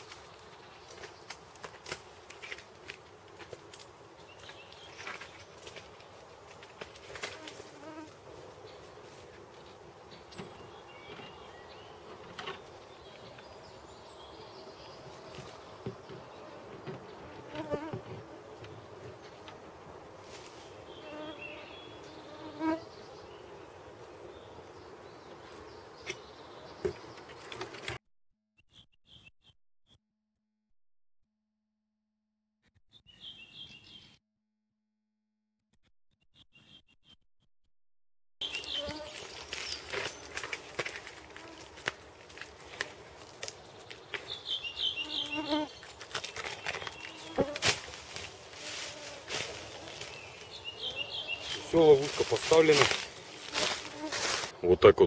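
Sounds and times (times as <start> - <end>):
scrapes of climbing down tree: 0.0 - 8.2, 38.5 - 54.5
flying insects buzzing: 6.9 - 9.3, 14.9 - 25.9, 38.4 - 45.8, 46.6 - 52.2, 52.8 - 54.5
flying insect buzzing: 7.2 - 8.2, 21.0 - 22.9, 38.6 - 39.4, 45.0 - 45.7, 48.5 - 50.1, 53.4 - 54.5.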